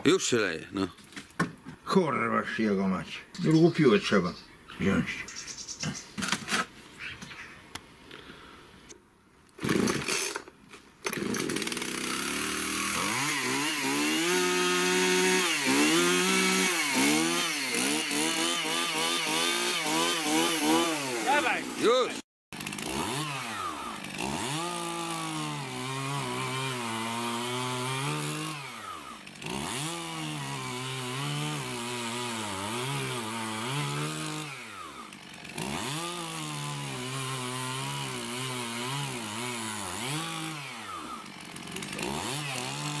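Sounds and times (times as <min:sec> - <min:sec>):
chainsaw cutting through boards: 0:09.5 - 0:43.0.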